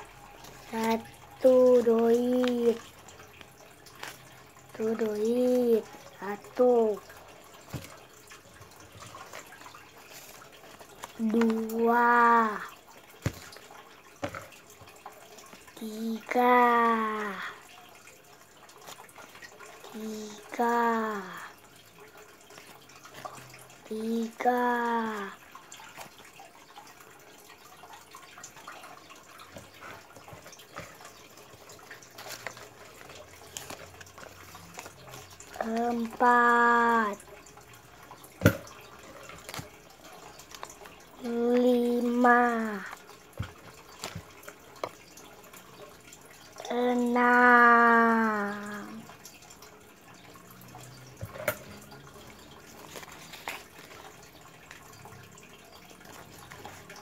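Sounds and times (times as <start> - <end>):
paper banknotes rustling: 31.7 - 36.6, 52.8 - 54.8.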